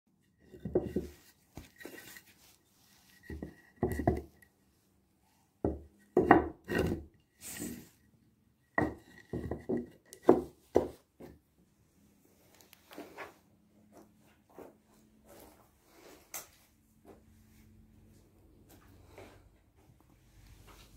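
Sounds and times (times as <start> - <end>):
wood knocking on workbench: 5.7 - 6.6, 8.8 - 11.0
short scrape: 7.4 - 8.0.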